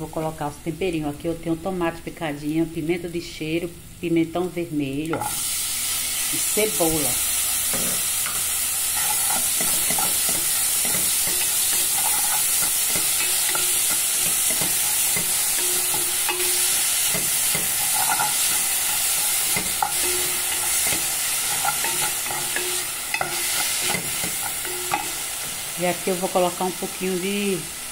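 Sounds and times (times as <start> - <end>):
vegetables sizzling in hot oil: 0.0 - 27.9
wooden spoon scraping a pot: 9.0 - 25.4.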